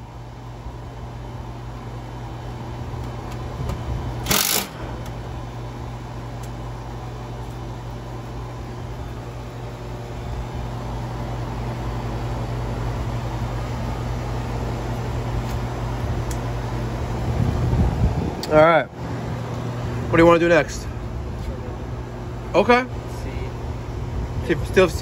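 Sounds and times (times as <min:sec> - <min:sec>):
steady low hum: 0:00.0 - 0:25.0
cordless drill driving a screw: 0:04.2 - 0:04.8.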